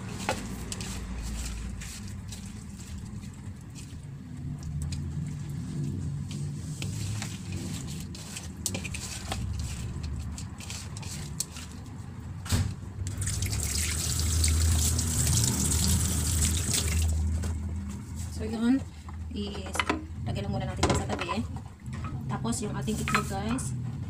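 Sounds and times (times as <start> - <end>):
shrimp squishing in bowl: 0.0 - 12.4.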